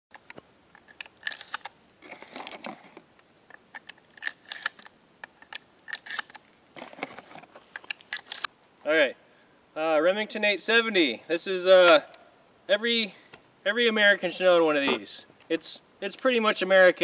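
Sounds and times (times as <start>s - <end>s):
shells clicking into shotgun: 0.8s - 1.7s, 3.5s - 6.4s.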